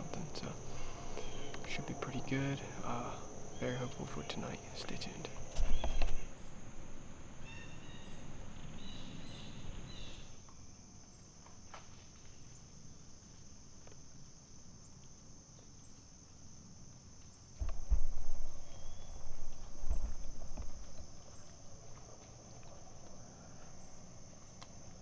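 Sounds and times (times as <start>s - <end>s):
insects droning: 0.0s - 25.0s
low thumps and rustling: 5.3s - 6.4s, 17.6s - 25.0s.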